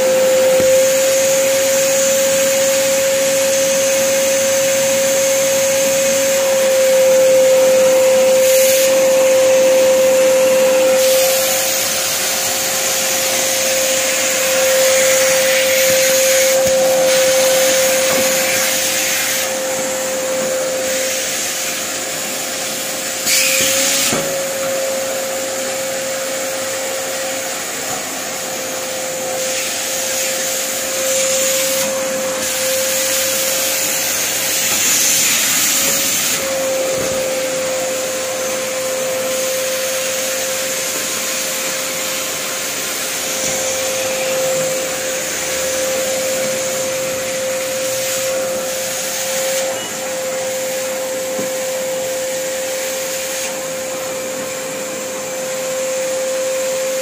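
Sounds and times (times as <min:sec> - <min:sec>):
vacuum cleaner running: 0:00.0 - 0:57.0.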